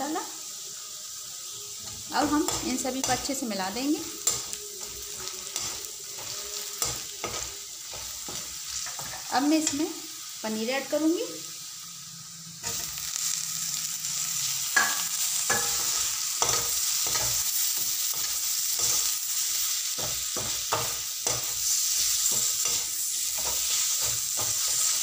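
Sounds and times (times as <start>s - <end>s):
frying sizzle: 0.0s - 25.0s.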